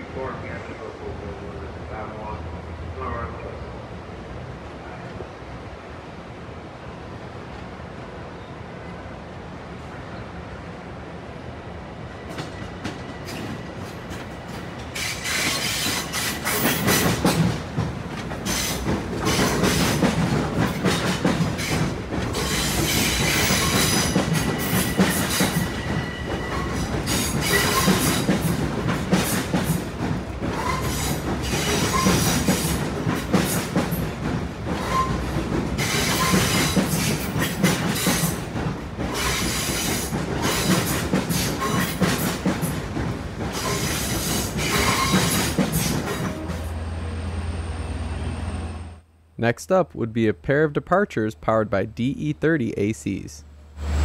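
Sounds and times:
wheel squealing on rail: 12.2 - 17.6, 18.4 - 28.6, 30.4 - 34.1, 34.7 - 42.8, 43.5 - 48.9
train wheels clicking over rails: 12.2 - 46.6.

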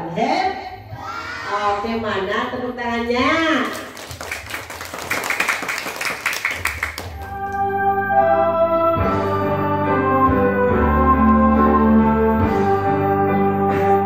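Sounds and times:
children clapping: 3.6 - 7.7
music with steady held notes: 7.3 - 14.0.

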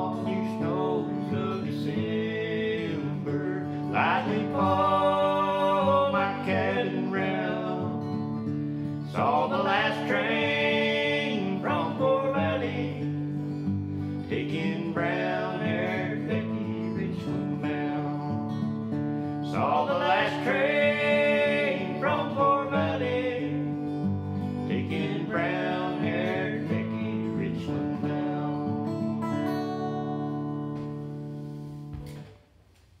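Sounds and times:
two men singing: 0.0 - 8.2, 9.1 - 13.4, 14.2 - 18.3, 19.4 - 23.9, 24.6 - 28.9
acoustic guitar: 0.0 - 33.0.

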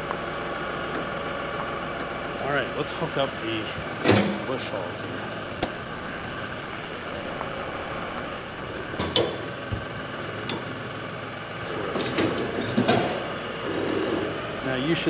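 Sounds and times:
tractor diesel engine idling: 0.0 - 15.0
metal clanks and knocks: 3.9 - 4.7, 8.7 - 10.9, 11.7 - 13.3.

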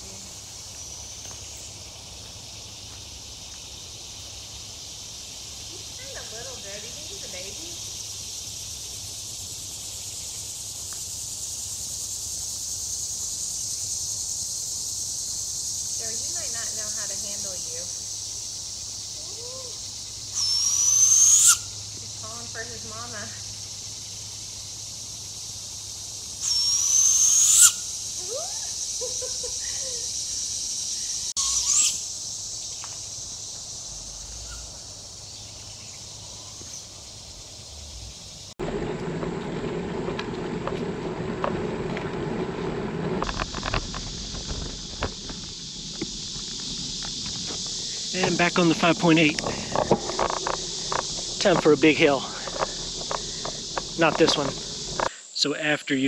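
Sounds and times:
insect chorus drone: 0.0 - 56.0
owl wailing and hooting: 19.2 - 21.8, 26.4 - 28.8, 31.4 - 32.1
high rising whistle: 26.4 - 28.4.

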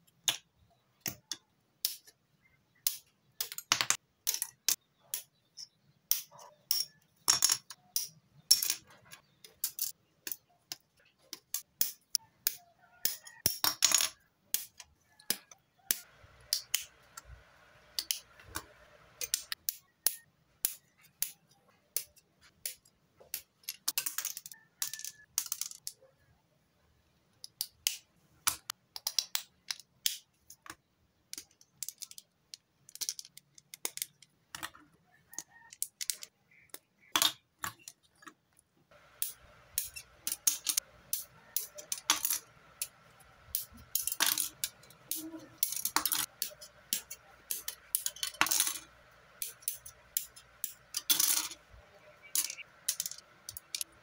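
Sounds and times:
plastic parts clicking: 2.8 - 7.0, 17.9 - 26.0, 27.4 - 54.0.

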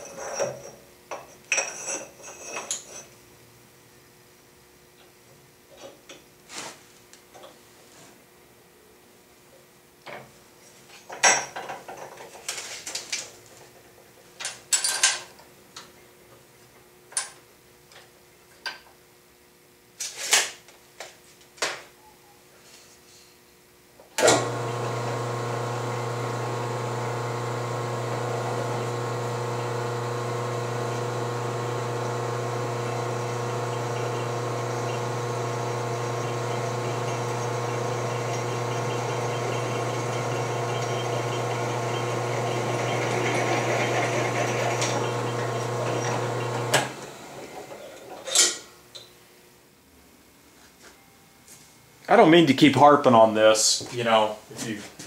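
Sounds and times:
drill press motor humming: 24.2 - 48.1.

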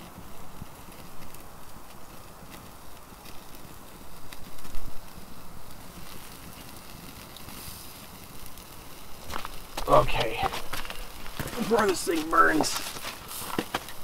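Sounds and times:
campfire crackling and popping: 0.0 - 14.0.

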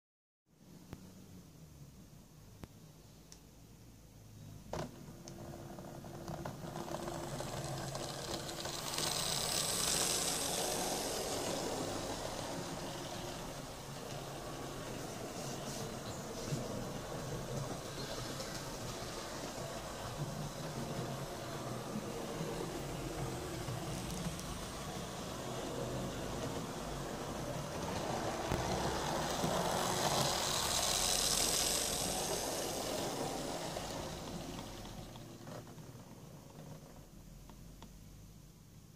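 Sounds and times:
wheels rattling over rails: 5.0 - 37.0
model train motor humming: 6.3 - 35.3.

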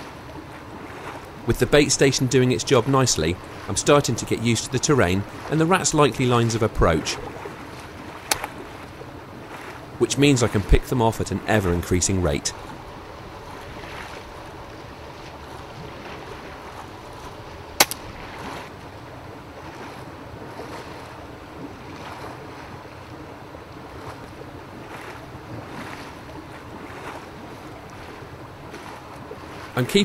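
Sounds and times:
water pumps rushing: 0.0 - 30.0
air rifle shot: 17.8 - 18.1.

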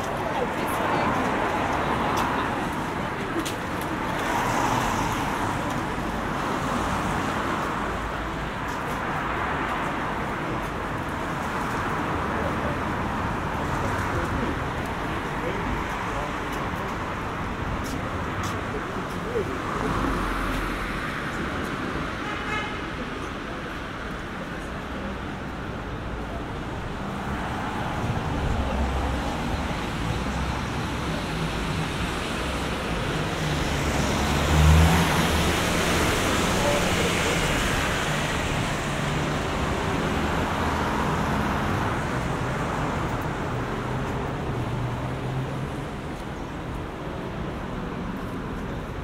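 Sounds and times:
tyres hissing on wet road: 28.7 - 41.5.

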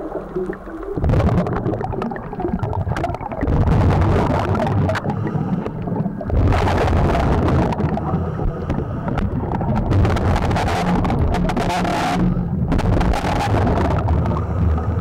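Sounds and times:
underwater exhaled bubbles rumbling: 0.0 - 15.0.

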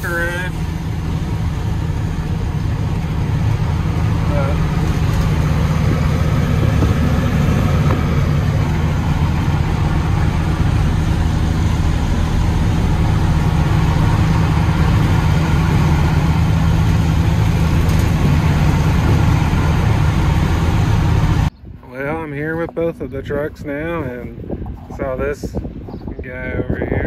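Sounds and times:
truck diesel engine running: 0.0 - 26.3
road noise rumble: 0.0 - 27.0.

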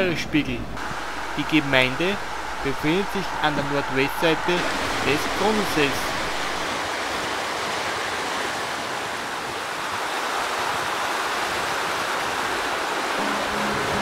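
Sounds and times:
river rushing over rocks: 0.8 - 14.0
music with held tones: 13.2 - 14.0.

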